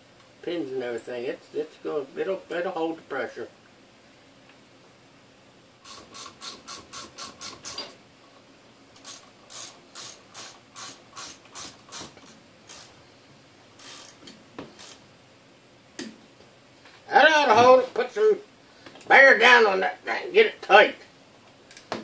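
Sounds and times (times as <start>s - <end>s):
hand ratchet clicking: 5.8s - 7.9s, 9.0s - 12.9s, 13.8s - 15.0s.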